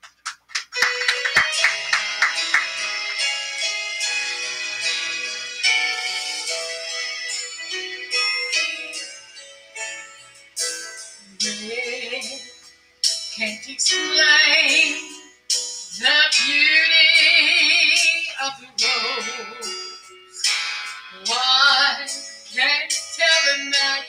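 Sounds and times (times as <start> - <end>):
woman singing through speakers: 11.2 - 12.6, 13.4 - 15.2, 15.9 - 19.9, 21.2 - 24.0.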